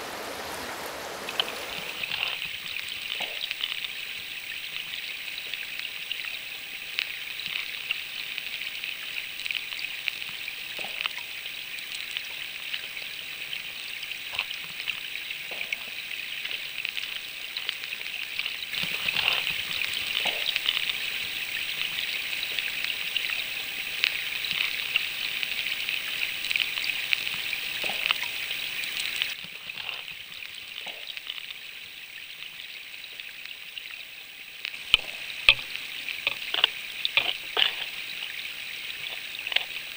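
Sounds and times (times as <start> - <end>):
underwater river rushing: 0.0 - 39.9.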